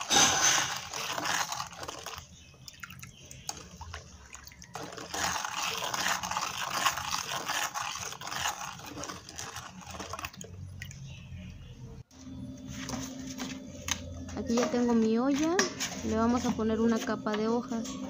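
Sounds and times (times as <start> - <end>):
spoon stirring water in bowl: 0.0 - 11.3.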